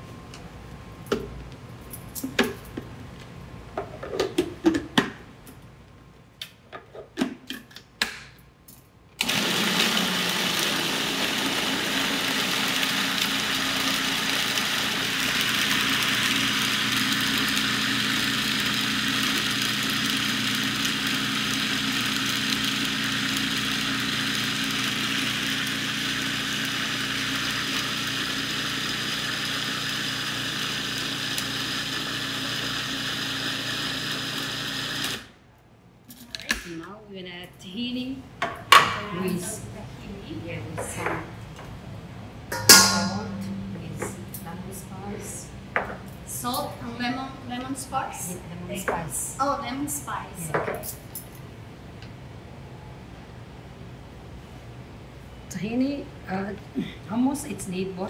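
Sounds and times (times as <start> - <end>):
food processor motor running: 9.2 - 35.3.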